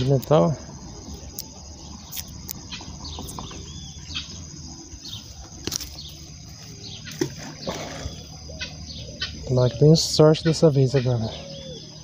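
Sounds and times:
birds chirping: 0.0s - 12.0s
high insect drone: 0.0s - 12.0s
sharp clicks: 1.3s - 3.5s.

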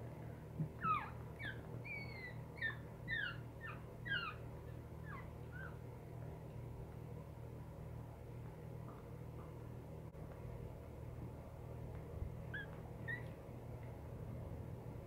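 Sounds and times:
puppy squeaking: 0.8s - 4.4s, 5.0s - 5.8s, 12.5s - 13.4s.

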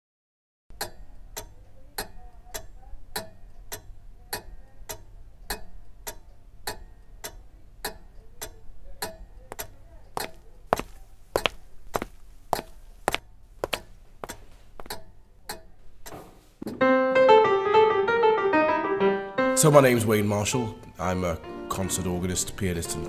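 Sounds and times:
pendulum clock ticking: 0.7s - 16.2s.

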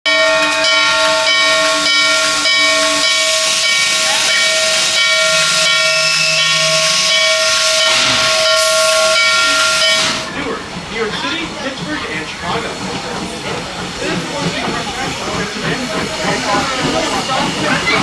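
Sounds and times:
steam locomotive whistle blast: 0.4s - 10.3s
hiss of steam: 2.2s - 10.3s, 12.6s - 18.0s.

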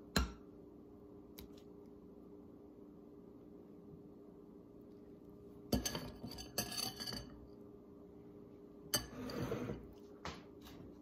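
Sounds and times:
metal spatula scraping glass bowl: 5.8s - 7.4s, 8.9s - 9.9s.

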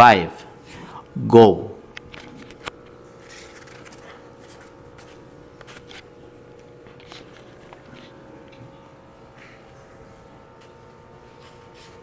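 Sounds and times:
low steady hum: 0.0s - 12.0s
soft scratching and rustling: 3.2s - 6.0s, 10.6s - 12.0s.

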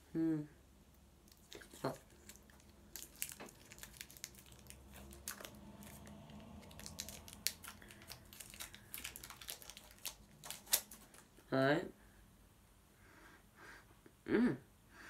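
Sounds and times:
sweet wrapper crinkling and tearing: 1.2s - 11.4s.

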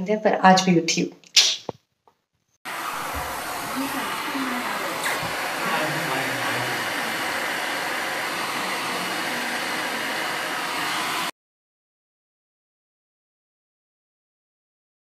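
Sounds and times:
electric blower whooshing: 2.7s - 11.3s.

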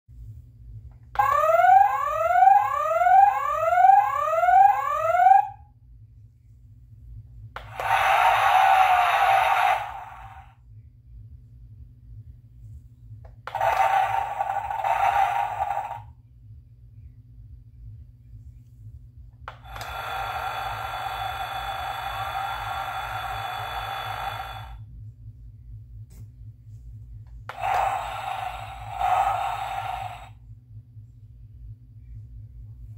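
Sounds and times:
toy electronic siren whoops: 1.2s - 5.7s, 7.6s - 10.4s, 13.5s - 16.1s, 19.5s - 24.8s, 27.5s - 30.4s.

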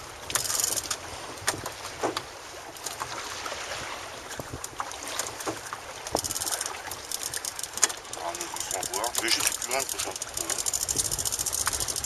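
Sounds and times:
choppy water around boat: 0.0s - 12.0s
wind on microphone: 9.4s - 12.0s.

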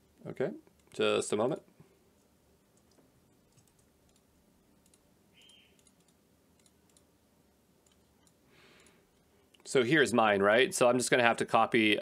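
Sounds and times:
mouse and keyboard clicks: 2.8s - 7.1s, 7.8s - 9.6s.

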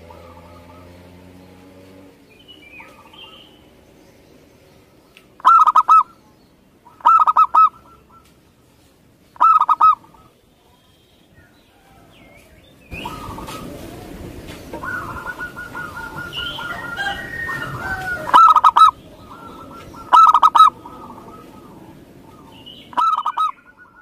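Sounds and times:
dove cooing: 0.0s - 1.3s, 5.4s - 6.2s, 6.8s - 8.3s, 9.4s - 10.4s, 12.9s - 24.0s
faint bird calls: 0.0s - 24.0s.

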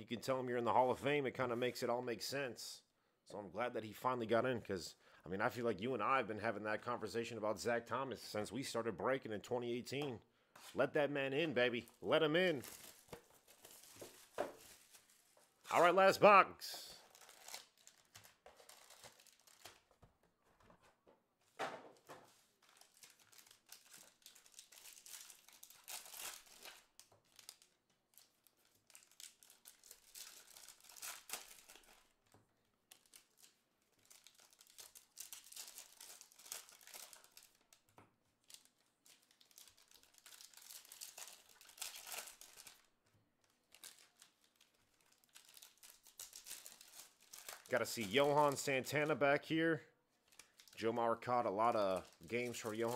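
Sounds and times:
plastic wrapping tearing and crinkling: 11.8s - 15.9s, 17.0s - 20.0s, 21.9s - 32.2s, 32.9s - 48.6s, 50.2s - 50.8s, 51.7s - 52.9s.

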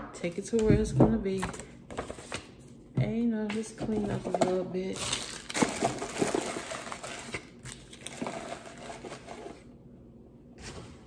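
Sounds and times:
plastic wrapper crinkling: 4.9s - 9.3s.

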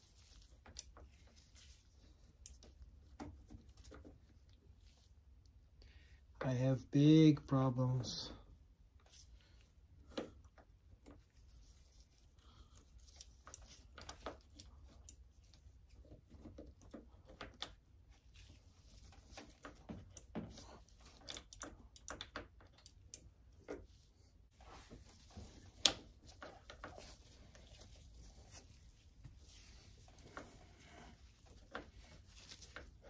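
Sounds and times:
gloved hands handling parts: 0.0s - 6.8s, 7.8s - 33.0s.

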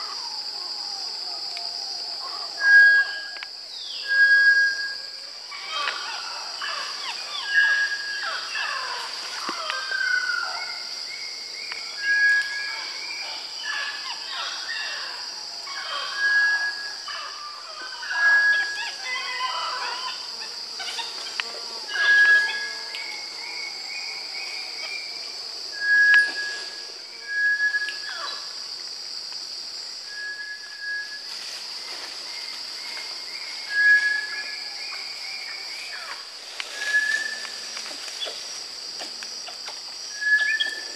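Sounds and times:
high insect drone: 0.0s - 40.9s
rustles: 30.7s - 40.9s.

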